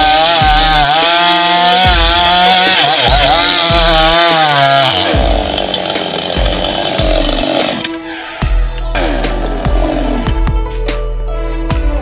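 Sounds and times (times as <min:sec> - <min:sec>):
chainsaw cutting wood: 0:00.0 - 0:08.0.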